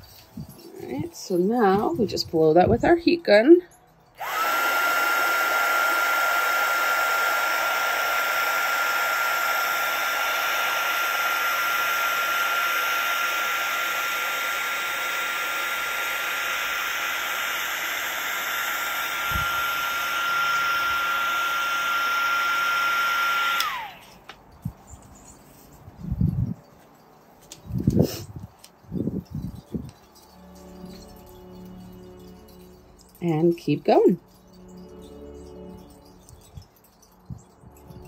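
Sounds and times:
heat gun blowing with whine: 0:04.2 - 0:24.4.

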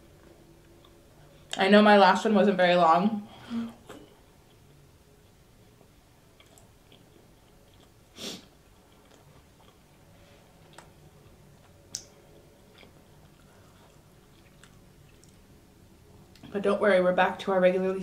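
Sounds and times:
close-miked chewing: 0:06.4 - 0:08.0, 0:08.6 - 0:15.5
short sniff: 0:08.1 - 0:08.5.

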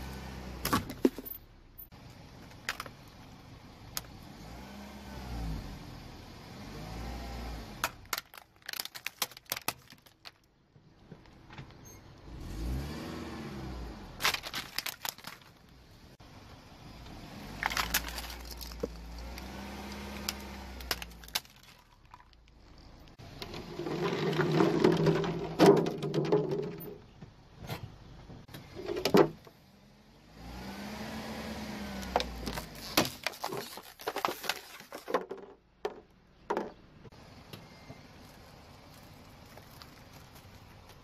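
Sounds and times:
plastic crushing under tyre: 0:07.8 - 0:11.4, 0:14.2 - 0:15.8, 0:17.6 - 0:27.2, 0:32.0 - 0:36.8, 0:38.2 - 0:41.0
car engine humming: 0:15.2 - 0:25.4.

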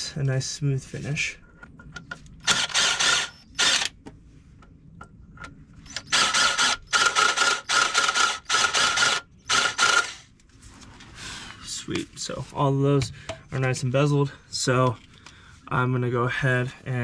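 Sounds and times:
power drill motor whine: 0:02.4 - 0:04.0, 0:05.8 - 0:10.3.

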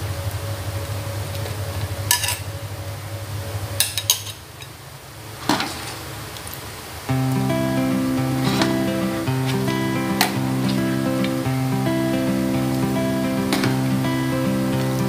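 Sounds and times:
guitar music: 0:07.1 - 0:15.0.

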